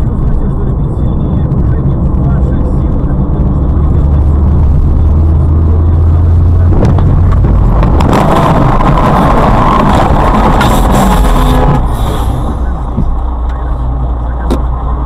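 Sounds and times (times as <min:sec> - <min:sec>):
car engine drone and road noise: 0:00.0 - 0:15.0.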